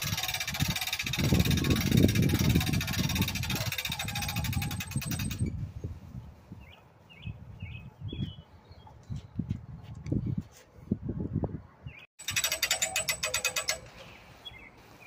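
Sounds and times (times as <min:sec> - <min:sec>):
bird chirping: 0:06.5 - 0:10.0, 0:12.8 - 0:15.0.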